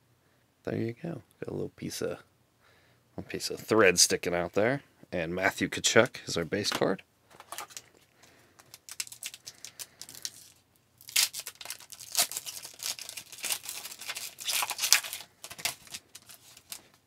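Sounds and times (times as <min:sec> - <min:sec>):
foil wrapper tearing and crinkling: 0:08.6 - 0:17.0.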